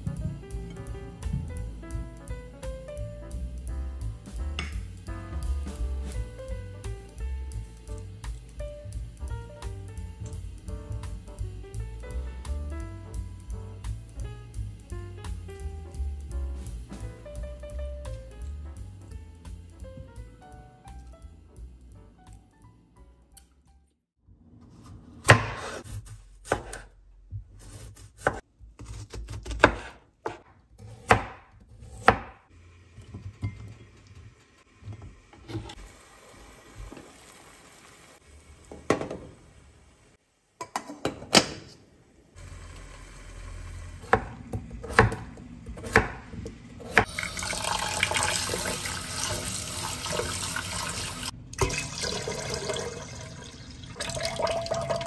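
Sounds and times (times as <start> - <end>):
knife slicing on wooden board: 24.8 - 26.9, 27.6 - 31.3
water pouring and sloshing: 47.0 - 55.0.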